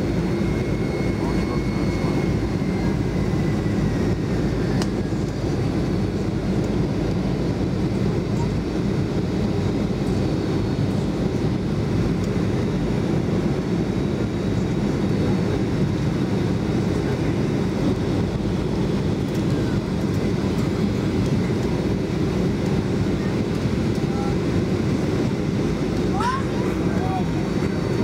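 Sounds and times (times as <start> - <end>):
airliner cabin engine din: 0.0 - 28.0.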